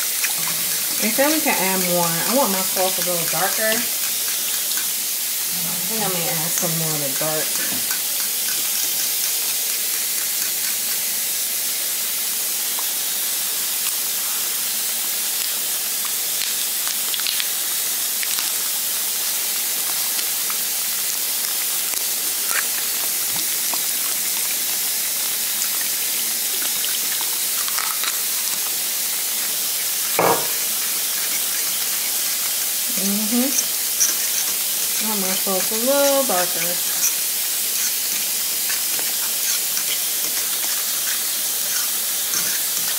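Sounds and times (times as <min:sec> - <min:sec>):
sauce sizzling in a wok: 0:00.0 - 0:42.9
sharp knock: 0:30.2 - 0:30.6.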